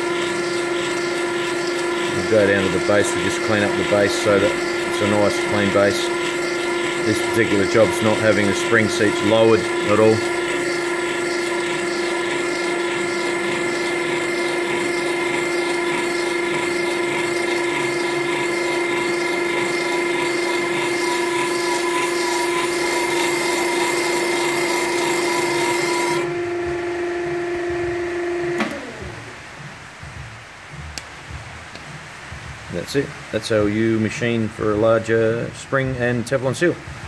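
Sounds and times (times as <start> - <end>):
cutter scraping metal: 0.0 - 26.4
drill press motor whine: 0.0 - 29.8.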